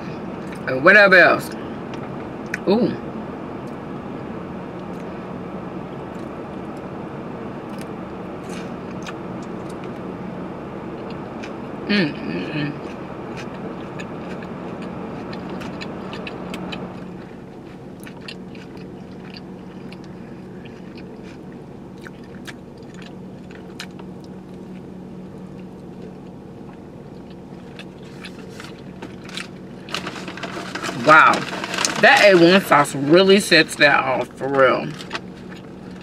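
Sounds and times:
air blowing from vents: 0:00.0 - 0:36.0
car engine idling hum: 0:00.0 - 0:36.0
person chewing food: 0:07.7 - 0:10.1, 0:12.6 - 0:32.0, 0:34.9 - 0:36.0.

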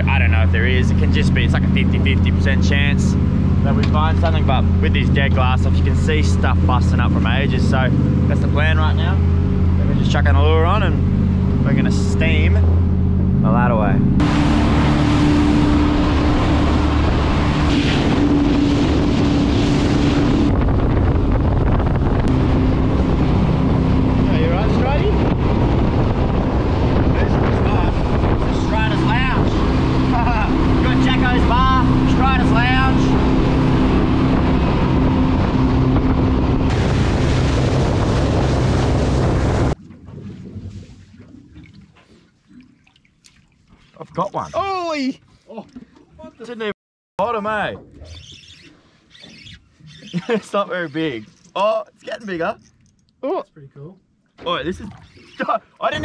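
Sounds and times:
wind buffeting microphone: 0:00.0 - 0:42.0
water rushing: 0:00.0 - 0:53.1
boat engine drone: 0:00.0 - 0:53.2
small clicks from boat: 0:03.8 - 0:04.4, 0:41.1 - 0:44.6, 0:45.2 - 0:46.2, 0:47.8 - 0:53.2.

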